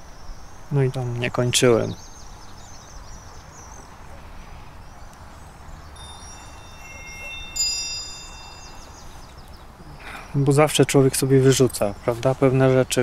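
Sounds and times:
small birds chirping: 0:00.0 - 0:13.0
wind chimes ringing: 0:05.9 - 0:09.5.

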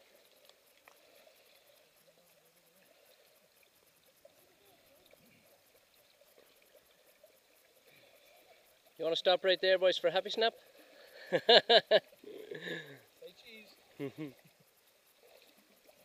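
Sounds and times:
faint water sloshing: 0:00.0 - 0:16.0.

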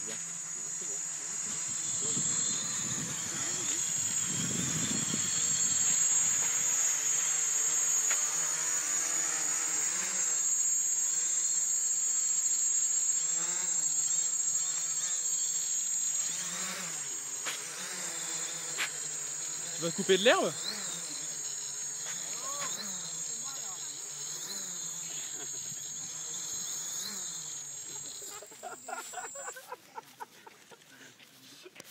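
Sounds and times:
quadcopter propellers buzzing: 0:00.0 - 0:31.9
propellers striking grass: 0:16.6 - 0:19.0.

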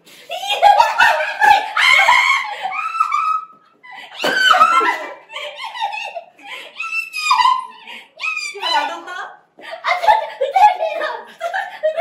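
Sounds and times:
young women laughing and giggling: 0:00.2 - 0:12.0.

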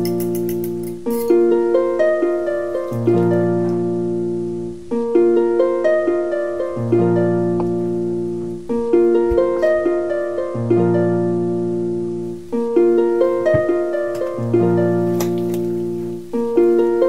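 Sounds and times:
plucked string melody: 0:00.0 - 0:17.0.

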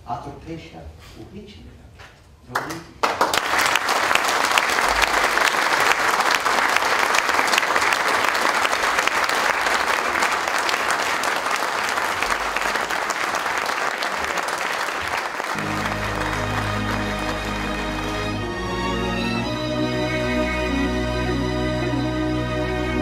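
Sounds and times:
audience applauding: 0:02.6 - 0:19.6.

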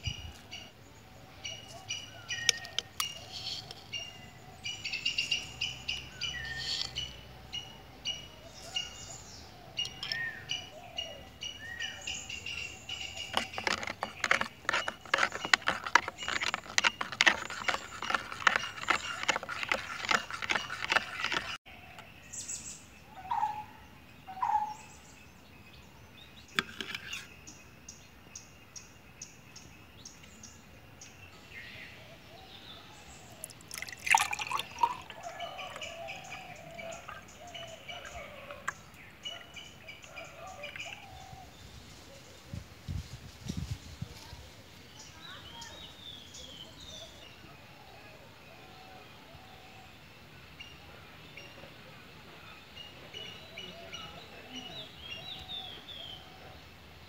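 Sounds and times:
birds chirping: 0:00.0 - 0:42.4, 0:45.0 - 0:56.6
spoon clinking in a metal bowl: 0:33.7 - 0:37.2.

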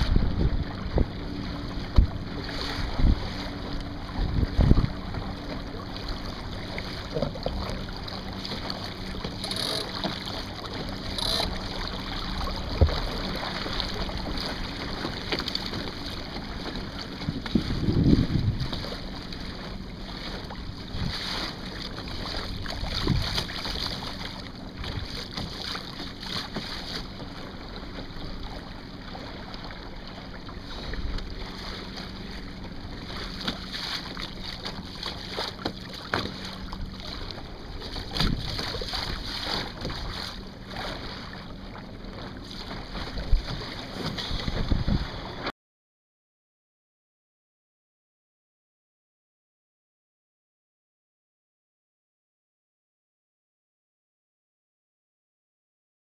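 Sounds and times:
wind buffeting microphone: 0:00.0 - 0:05.4, 0:17.1 - 0:18.8, 0:44.3 - 0:45.4
water splashing along hull: 0:00.0 - 0:45.5.

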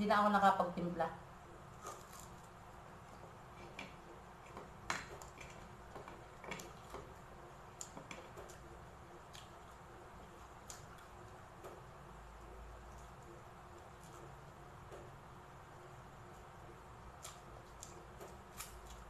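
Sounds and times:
chewing crispy food: 0:01.7 - 0:02.6.

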